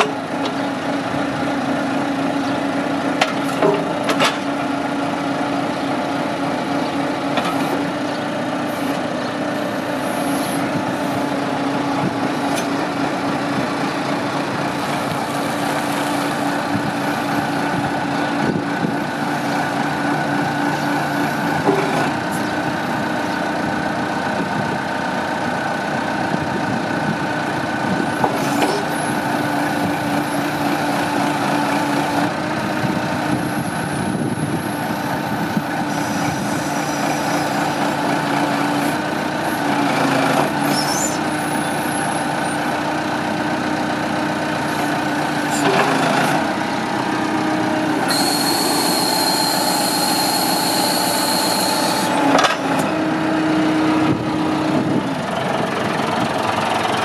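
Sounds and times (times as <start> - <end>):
diesel engine under load: 0.0 - 57.0
high hydraulic whine: 33.3 - 38.0, 40.4 - 42.6, 47.9 - 52.9.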